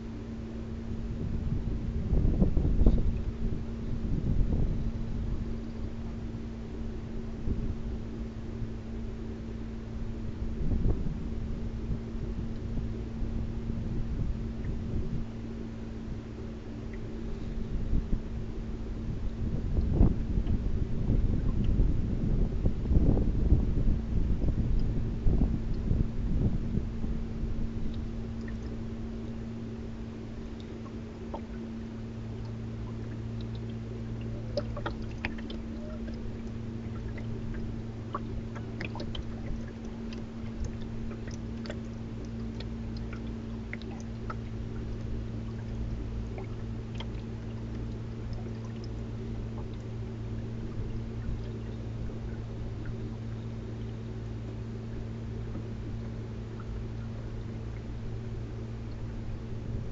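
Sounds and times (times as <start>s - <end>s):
low hum: 0.0s - 59.9s
water lapping against boat hull: 0.0s - 59.9s
droplets splashing: 32.4s - 50.0s.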